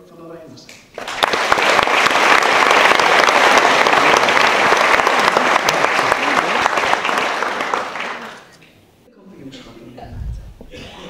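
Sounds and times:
audience applauding: 0:00.9 - 0:08.6.

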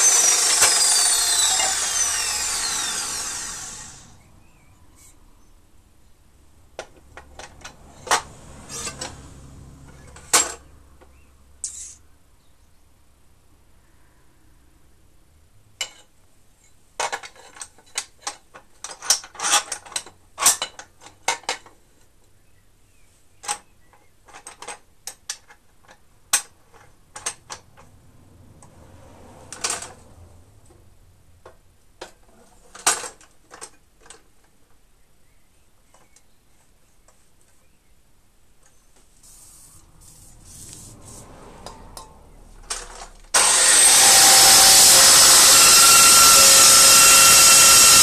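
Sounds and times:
metal scraping: 0:07.4 - 0:10.6, 0:39.1 - 0:45.8.

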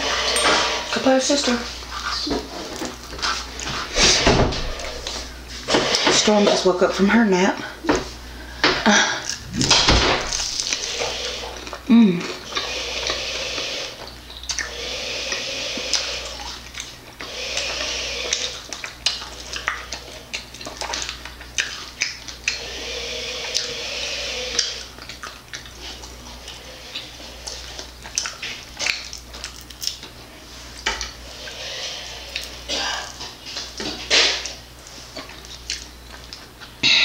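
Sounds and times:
wet chewing: 0:09.2 - 0:36.8.

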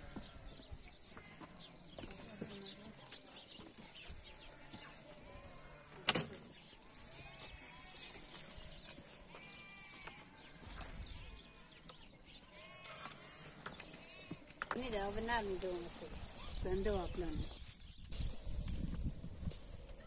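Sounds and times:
sheep bleating: 0:09.3 - 0:10.6, 0:12.4 - 0:13.4.

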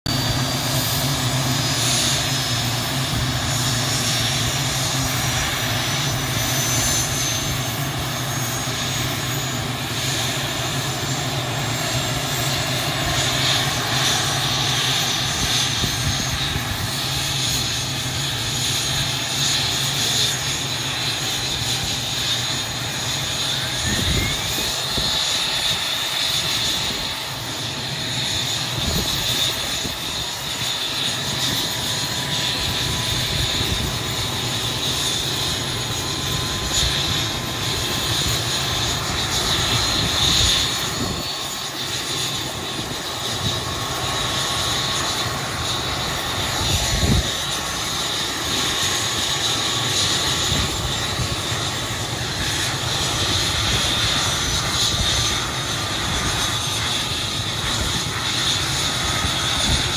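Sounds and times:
helicopter turbine engines running: 0:00.0 - 0:59.9.

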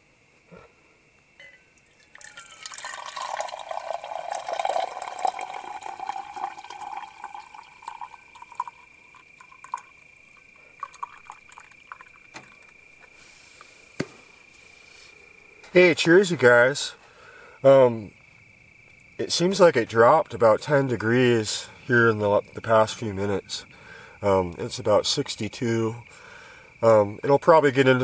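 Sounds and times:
crickets chirping: 0:00.0 - 0:28.0
coffee pouring into tumbler: 0:01.8 - 0:12.8.

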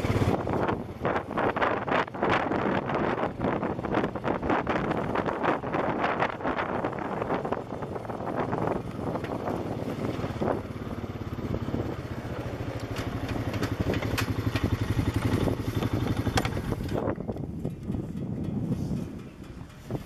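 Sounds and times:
utility vehicle engine running: 0:00.0 - 0:20.0
rattles and knocks over gravel: 0:12.6 - 0:18.4.

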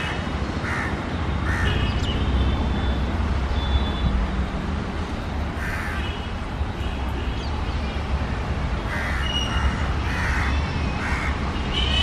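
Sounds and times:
crows cawing: 0:00.6 - 0:01.8, 0:05.6 - 0:06.1, 0:08.9 - 0:11.4.

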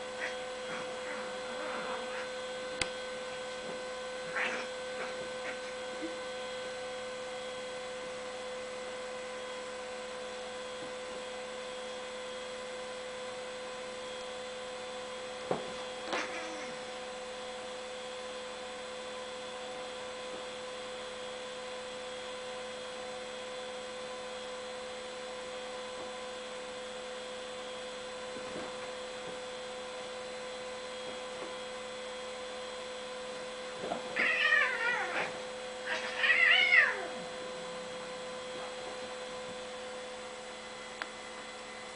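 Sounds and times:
cats yowling and growling: 0:00.0 - 0:02.4, 0:04.2 - 0:06.2, 0:16.1 - 0:16.9, 0:34.1 - 0:37.5
electrical hum: 0:00.0 - 0:41.9.

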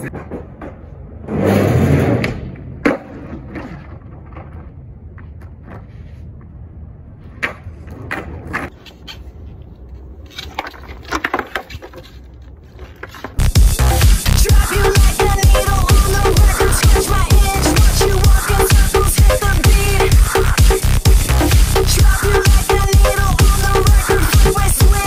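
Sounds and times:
skateboard clacking on ground: 0:00.0 - 0:01.2, 0:07.3 - 0:13.4
skateboard rolling on asphalt: 0:00.0 - 0:13.4
electronic dance music: 0:13.4 - 0:25.0.

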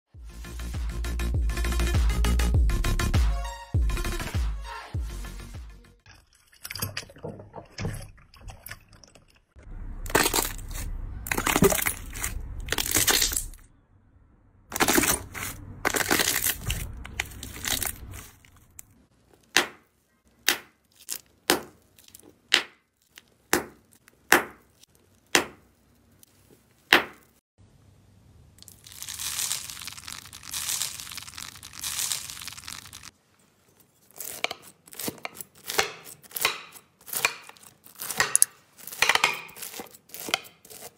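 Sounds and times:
slime crackling and squishing: 0:10.0 - 0:13.6, 0:14.7 - 0:27.4, 0:28.6 - 0:33.2, 0:34.0 - 0:40.9.

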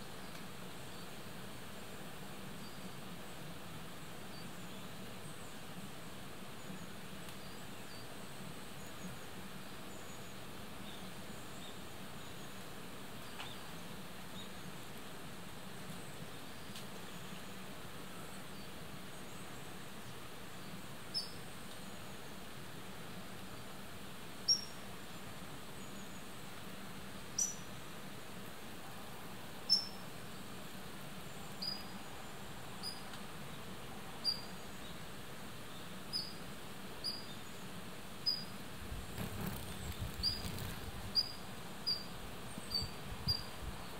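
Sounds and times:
faint outdoor hiss: 0:00.0 - 0:43.9
camera handling rumble: 0:39.1 - 0:41.0.

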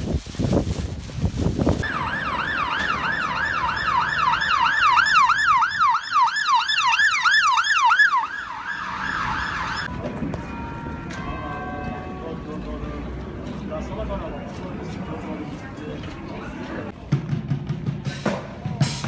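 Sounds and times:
wind flapping plastic sheet: 0:00.0 - 0:01.9
ambulance siren wailing: 0:01.8 - 0:10.0.

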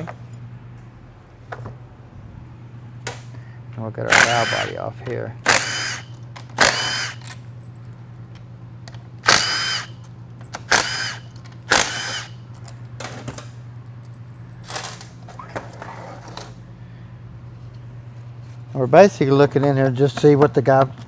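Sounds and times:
steady low hum: 0:00.0 - 0:21.0
power driver whining: 0:03.9 - 0:07.5, 0:08.3 - 0:12.6.

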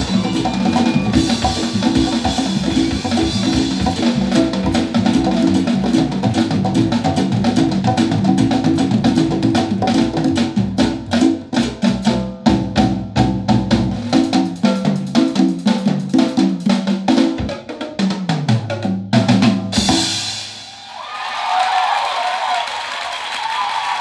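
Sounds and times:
applause: 0:20.8 - 0:24.0.

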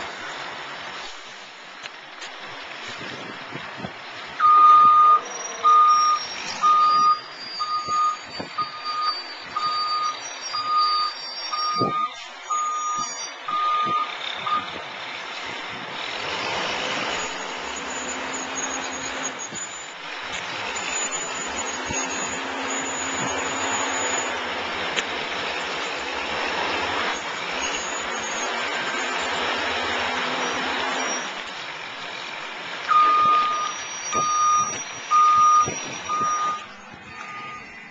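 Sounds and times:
traffic: 0:00.0 - 0:37.9
wind: 0:00.0 - 0:37.9
truck backup alarm beeping: 0:04.4 - 0:14.8, 0:16.9 - 0:24.4, 0:27.2 - 0:29.4, 0:30.2 - 0:31.4, 0:32.9 - 0:37.9.

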